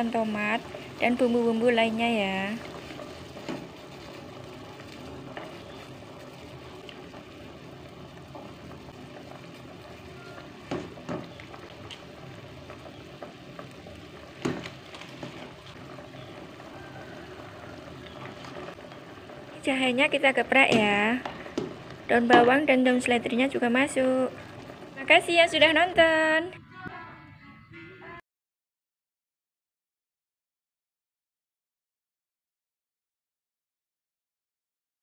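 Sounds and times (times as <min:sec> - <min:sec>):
soup boiling in a pot: 0:00.0 - 0:26.0
metal spoon knocking on pot: 0:22.2 - 0:22.7.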